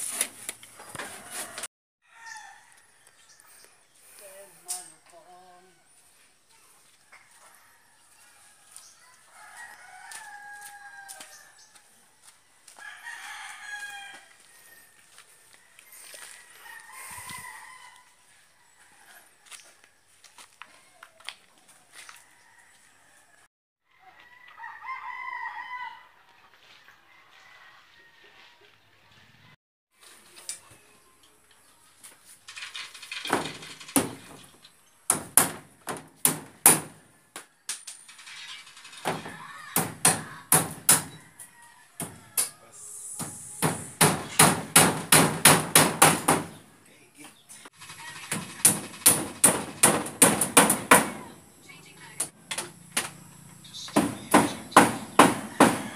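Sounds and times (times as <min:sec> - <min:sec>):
roosters crowing: 0:00.8 - 0:03.7, 0:07.0 - 0:20.0, 0:21.9 - 0:26.3, 0:35.8 - 0:46.8, 0:47.6 - 0:55.9
hammer striking wooden panel: 0:35.1 - 0:37.0, 0:43.6 - 0:46.5, 0:48.3 - 0:51.2, 0:54.0 - 0:55.9.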